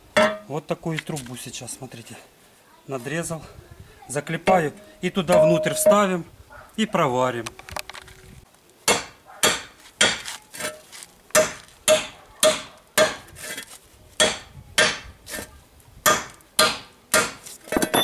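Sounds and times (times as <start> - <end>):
hammer striking steel pipe: 0.2 - 0.4, 4.5 - 6.0.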